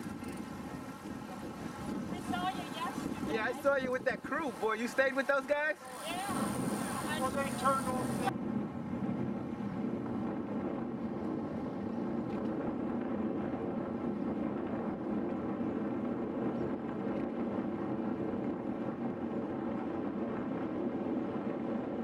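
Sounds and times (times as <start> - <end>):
bicycle tyres on asphalt: 0.0 - 22.0
wind buffeting microphone: 0.0 - 22.0.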